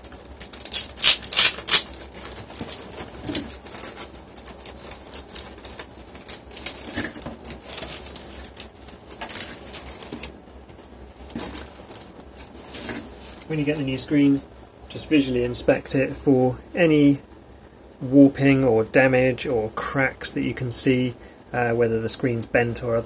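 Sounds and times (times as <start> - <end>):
bubble wrap and plastic crinkling: 0.0 - 14.1.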